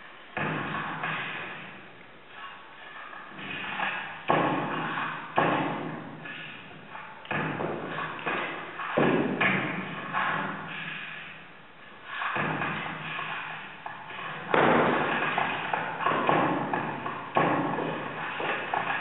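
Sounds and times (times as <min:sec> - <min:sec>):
distorted echoing tails: 0:00.0 - 0:19.0
flamenco footwork stamps on glass: 0:03.4 - 0:06.4, 0:07.3 - 0:10.8, 0:14.1 - 0:19.0.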